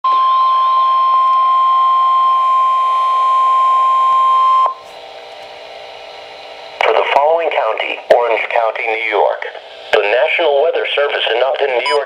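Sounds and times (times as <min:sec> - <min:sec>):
high alarm tone from radio: 0:00.1 - 0:04.8, 0:11.8 - 0:12.0.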